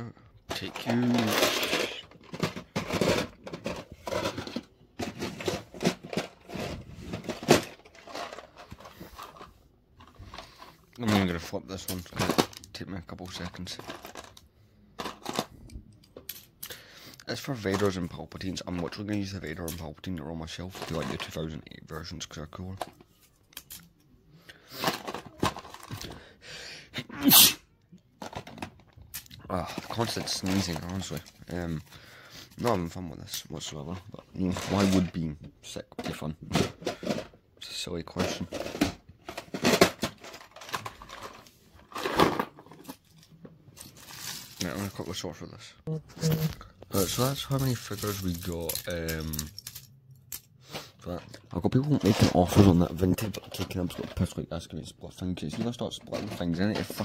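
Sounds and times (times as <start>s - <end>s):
plastic figures clattering: 0.0s - 26.4s, 28.0s - 45.4s, 46.4s - 57.0s
person breathing in: 26.0s - 27.0s
person sneezing: 27.0s - 27.7s.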